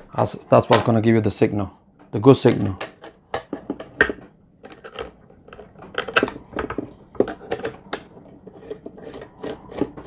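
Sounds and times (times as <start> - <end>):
plastic parts clicking and tapping: 2.5 - 10.0.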